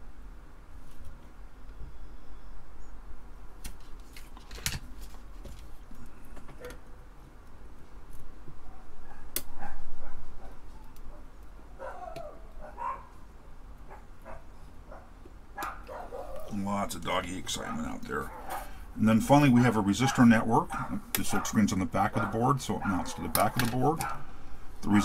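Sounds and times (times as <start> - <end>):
dog yipping and barking: 8.7 - 10.6, 11.8 - 13.1, 13.9 - 16.5, 17.6 - 18.7, 19.6 - 23.3
flush cutters snipping leads: 23.1 - 24.2.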